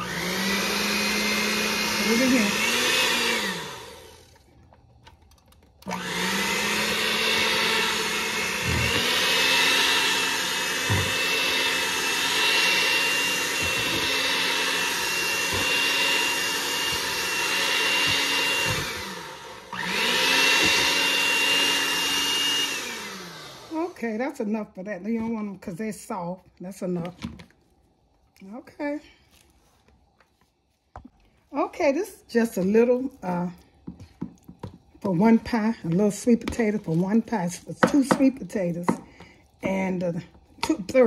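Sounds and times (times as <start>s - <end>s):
mixer beaters knocking: 0.0s - 4.0s, 5.1s - 23.1s, 33.8s - 40.0s
electric hand mixer motor: 0.0s - 24.6s, 32.3s - 41.0s.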